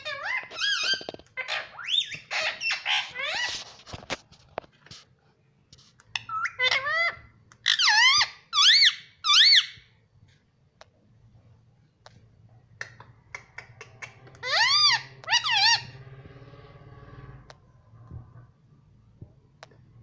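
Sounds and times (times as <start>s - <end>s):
parakeet calling: 0.0s - 3.6s, 6.1s - 9.8s, 13.3s - 17.5s.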